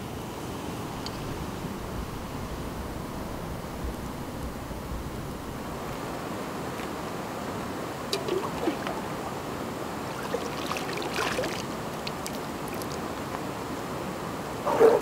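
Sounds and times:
water washing at shore: 0:06.0 - 0:14.5
pots splashing in water: 0:08.1 - 0:13.4.

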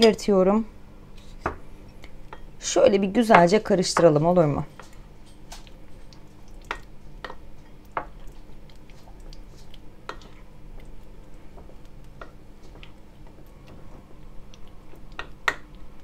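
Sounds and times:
sticky mixture squishing: 0:04.8 - 0:16.0.

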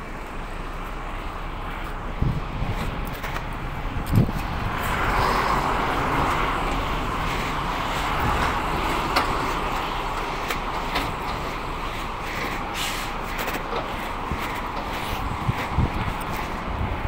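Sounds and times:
road traffic rushing: 0:00.0 - 0:17.0.

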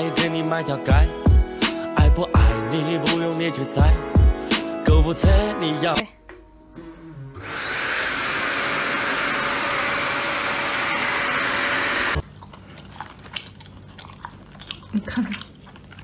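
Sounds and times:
vacuum cleaner motor whining: 0:07.4 - 0:12.2.

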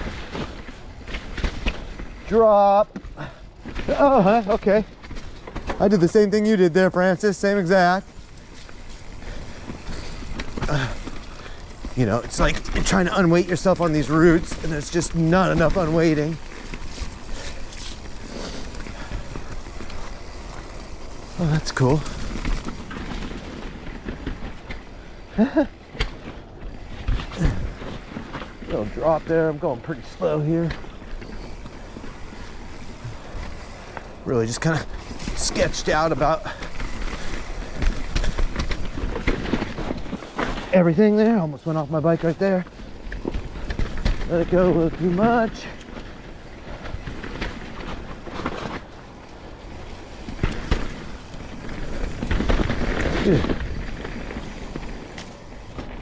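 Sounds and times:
bike rattling: 0:00.0 - 0:56.0
bike tyres on dirt trail: 0:00.0 - 0:56.0
bike knocking over bumps: 0:49.7 - 0:56.0.

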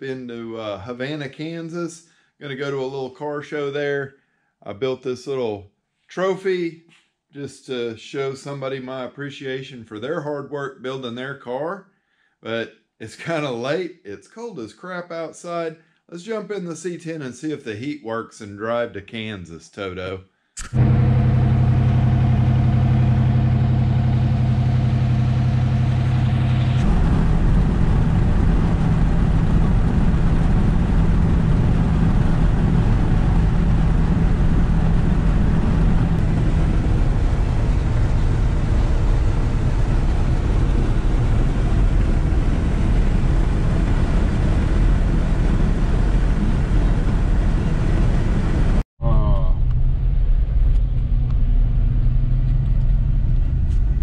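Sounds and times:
pickup engine idling: 0:20.8 - 0:27.1
pickup driving with road noise: 0:20.8 - 0:47.2.

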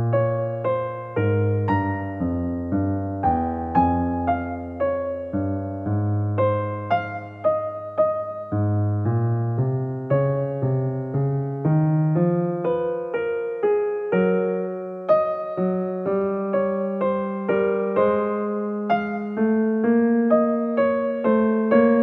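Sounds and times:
gentle piano melody: 0:00.0 - 0:22.0.

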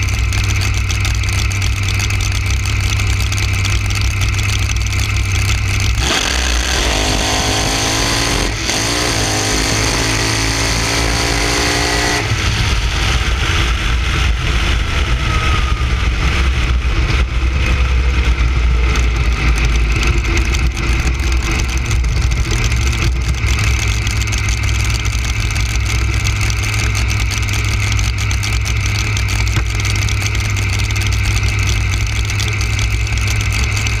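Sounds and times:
drag car engine revving: 0:00.0 - 0:34.0
low rumble of rolling car: 0:00.0 - 0:34.0
faint falling whine: 0:12.4 - 0:19.9.

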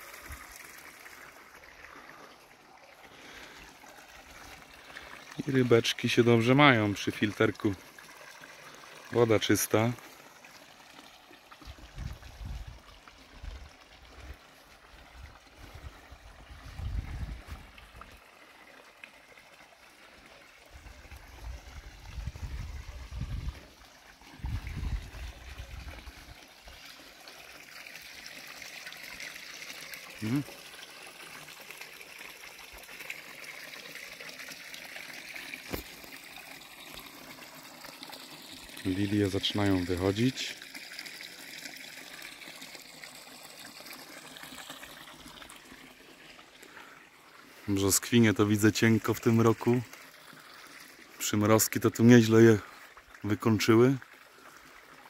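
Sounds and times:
water trickling and splashing: 0:00.0 - 0:55.0.

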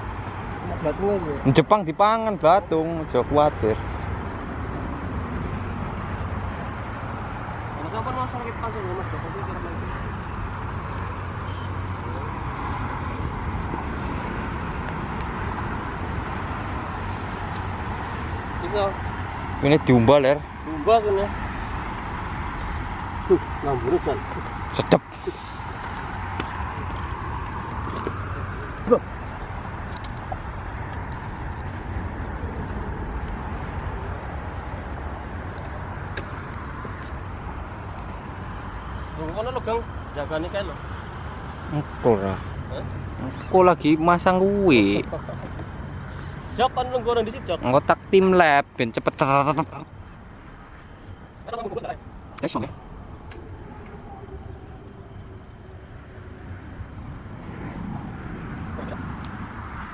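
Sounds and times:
passing vehicles rushing: 0:00.0 - 0:59.9
low hum: 0:49.8 - 0:59.9.

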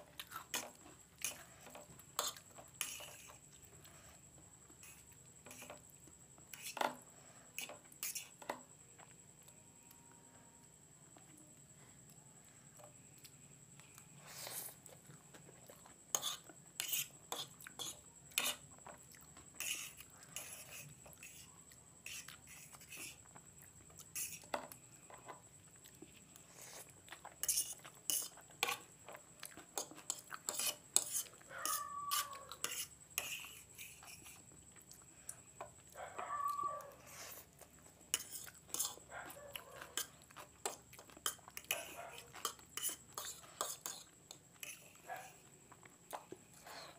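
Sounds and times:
fork clicking and scraping plate: 0:00.3 - 0:03.4, 0:16.1 - 0:18.6, 0:19.6 - 0:23.2, 0:27.4 - 0:28.9, 0:29.8 - 0:34.4, 0:38.1 - 0:39.0, 0:39.8 - 0:44.9.

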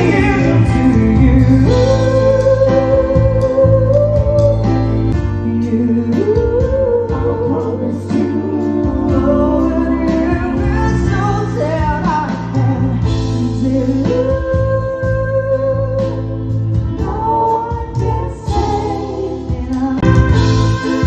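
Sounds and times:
man singing into microphone: 0:00.0 - 0:04.7, 0:05.4 - 0:16.2
bass: 0:00.0 - 0:21.0
electric keyboard chords: 0:00.0 - 0:21.0.

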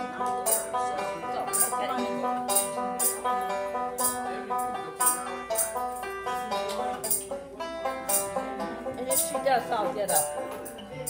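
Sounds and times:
banjo melody: 0:00.0 - 0:11.0
sharp percussion strokes: 0:04.0 - 0:06.1, 0:08.1 - 0:08.4.

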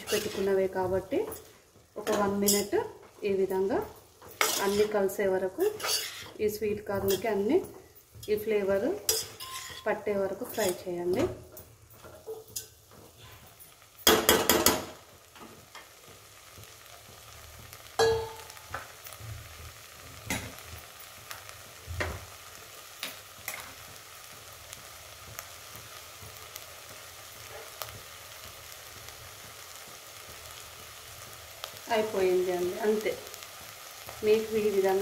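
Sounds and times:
vegetables sizzling in a pot: 0:00.0 - 0:35.0
steel spoon clattering on pot: 0:09.1 - 0:09.9, 0:18.0 - 0:18.5.

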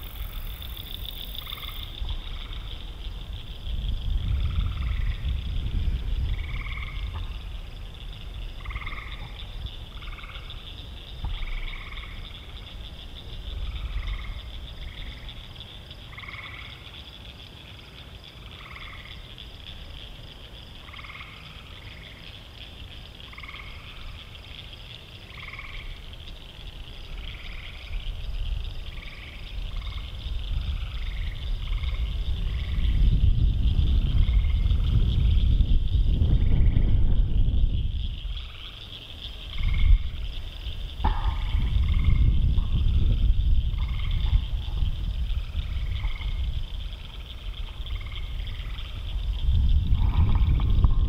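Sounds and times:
frogs croaking: 0:00.0 - 0:51.0
low rumble: 0:30.2 - 0:38.4, 0:41.0 - 0:51.0.

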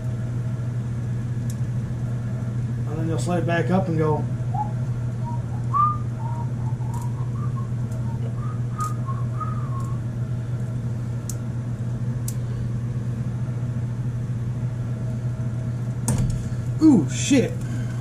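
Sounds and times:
steady low hum: 0:00.0 - 0:18.0
soft whistled notes: 0:04.5 - 0:10.1.

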